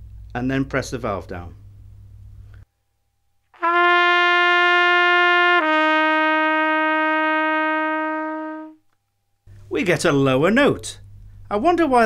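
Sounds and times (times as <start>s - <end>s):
plastic trumpet notes: 3.6s - 8.8s.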